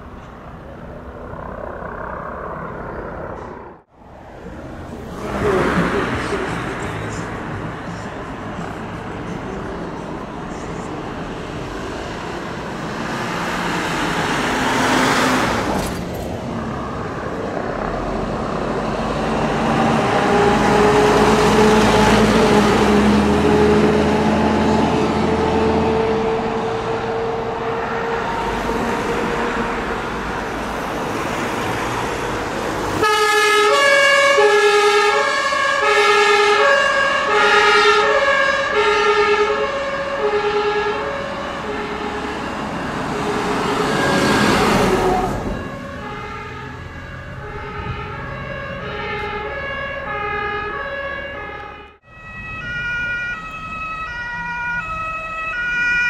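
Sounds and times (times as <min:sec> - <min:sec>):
road traffic: 0:00.0 - 0:56.0
truck engines running: 0:00.0 - 0:56.0
two-tone emergency siren: 0:19.1 - 0:30.8, 0:31.4 - 0:56.0.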